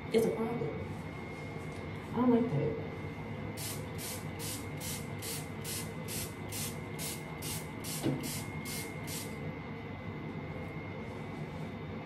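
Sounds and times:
spray bottle hissing: 0:03.6 - 0:09.3.

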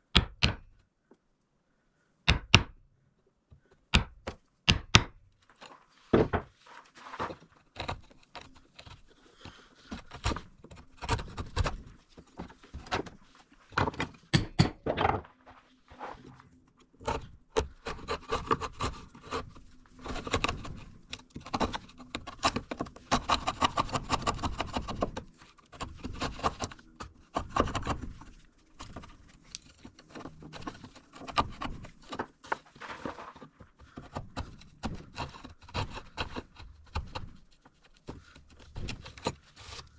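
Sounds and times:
chisel scraping wood: 0:07.0 - 0:14.2, 0:17.0 - 0:39.9.

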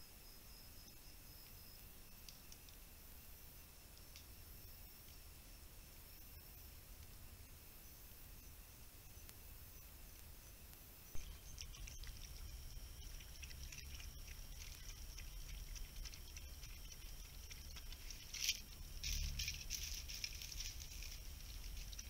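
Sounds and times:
steady high-pitched tone: 0:11.1 - 0:22.0
animal lapping water: 0:11.2 - 0:22.0.

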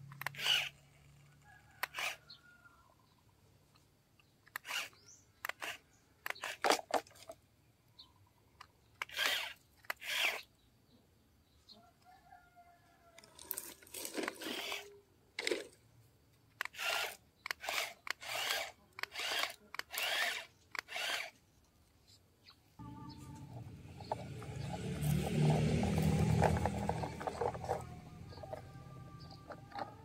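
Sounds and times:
toy excavator scraping gravel: 0:00.0 - 0:02.4, 0:04.5 - 0:07.4, 0:09.0 - 0:10.5, 0:13.2 - 0:15.8, 0:16.6 - 0:21.4, 0:23.1 - 0:30.0
low whirring: 0:22.8 - 0:30.0.

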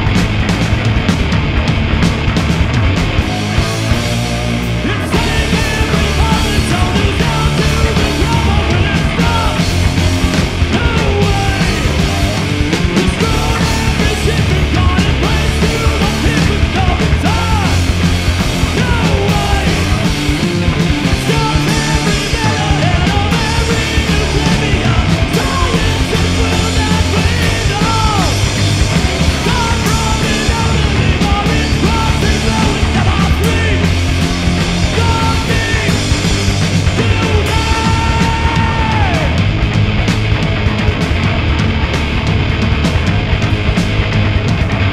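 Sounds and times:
punk rock band playing live: 0:00.0 - 0:44.9
shouted vocal: 0:18.6 - 0:20.1, 0:21.0 - 0:39.5.

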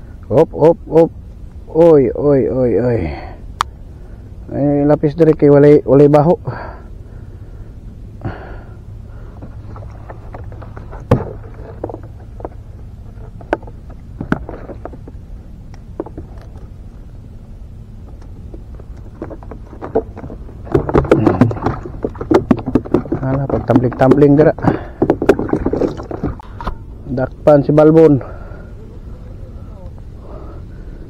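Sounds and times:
sharp clicks and knocks: 0:18.0 - 0:26.8
fish flipping rapid knocks: 0:18.4 - 0:26.4.

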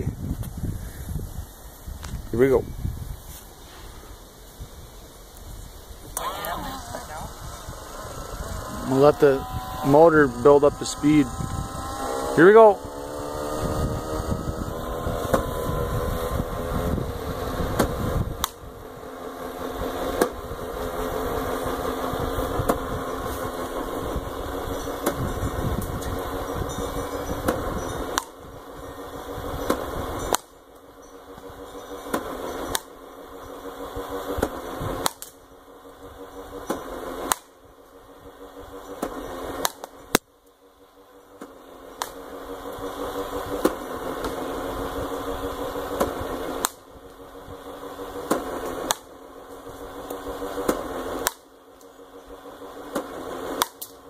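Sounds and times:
pitching machine motor humming: 0:00.0 - 0:54.0
sharp crack of ball: 0:17.8 - 0:18.6, 0:34.4 - 0:35.4, 0:36.7 - 0:37.5, 0:39.0 - 0:40.3, 0:48.3 - 0:49.1, 0:50.6 - 0:51.5, 0:52.9 - 0:54.0.

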